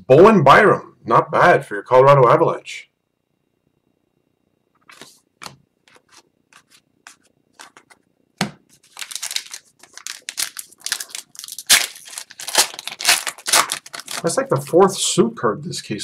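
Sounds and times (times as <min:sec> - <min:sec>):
cards clicking and scraping: 0:04.8 - 0:08.0
card pack wrapper crinkling: 0:08.8 - 0:14.9.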